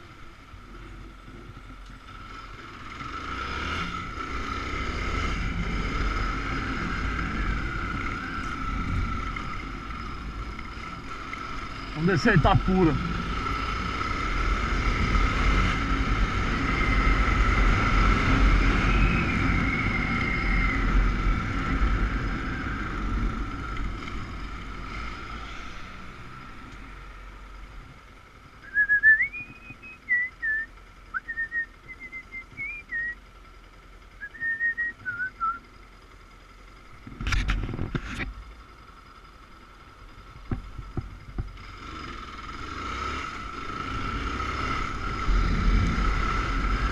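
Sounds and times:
motorcycle riding: 0.0s - 46.9s
motorcycle idling: 5.4s - 46.9s
person whistling a tune: 28.6s - 33.2s, 34.2s - 35.6s.

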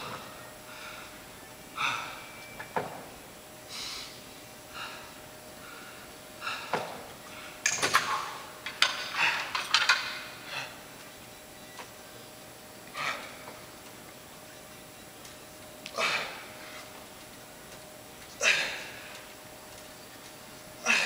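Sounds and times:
man breathing hard: 0.0s - 2.4s, 3.7s - 8.4s
dumbbells clicking and clanking: 6.4s - 10.8s.

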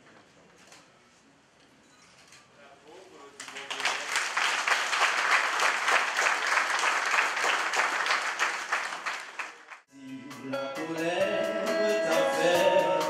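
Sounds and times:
crowd applauding: 3.4s - 9.8s.

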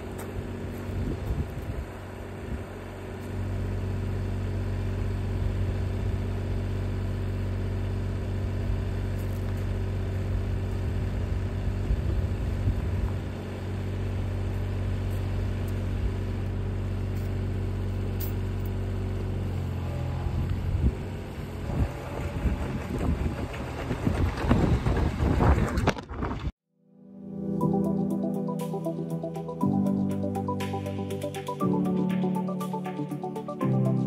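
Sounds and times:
diesel engine running: 0.0s - 25.9s.

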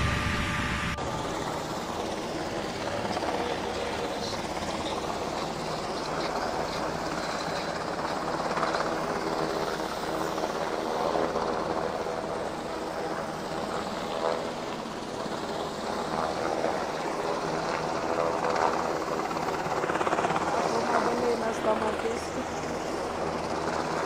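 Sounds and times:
helicopter flying overhead: 0.0s - 24.0s.

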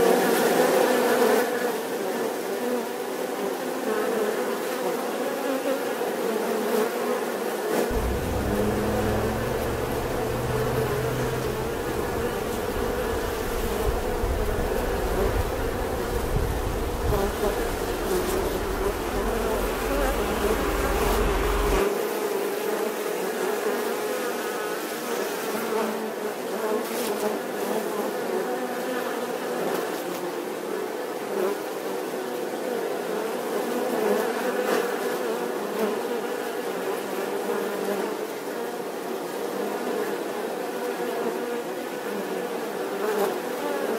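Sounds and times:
honeybees buzzing: 7.9s - 21.8s
low rumble: 7.9s - 21.8s.

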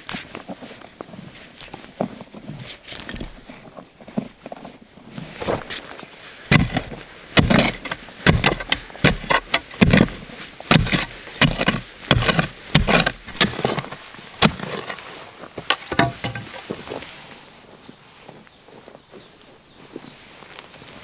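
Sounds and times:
hand tool striking heavily: 6.5s - 13.7s, 15.8s - 16.6s.

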